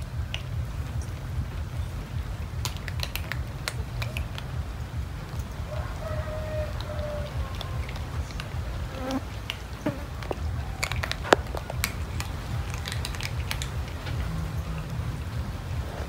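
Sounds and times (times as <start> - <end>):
low hum: 0.0 - 16.0
cats crunching dry kibble: 2.6 - 4.5, 10.2 - 14.3.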